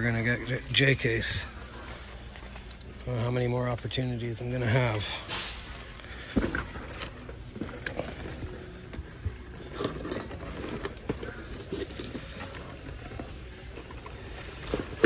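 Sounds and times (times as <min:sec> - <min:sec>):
plastic and cardboard clicks and rustles: 0:04.7 - 0:15.0.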